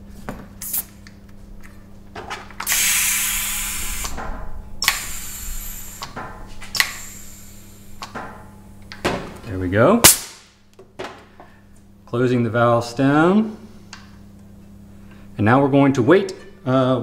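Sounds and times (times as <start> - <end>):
bicycle pump hissing strokes: 0.6 - 1.0, 2.6 - 8.2.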